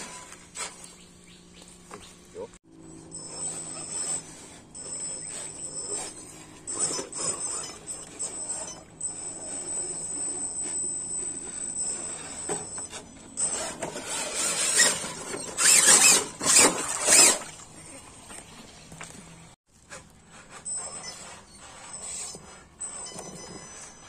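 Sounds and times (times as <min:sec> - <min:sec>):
tyres scraping and knocking on dirt: 0:00.0 - 0:02.2, 0:03.5 - 0:17.6
toy truck motor whining: 0:02.8 - 0:17.6, 0:20.3 - 0:24.0.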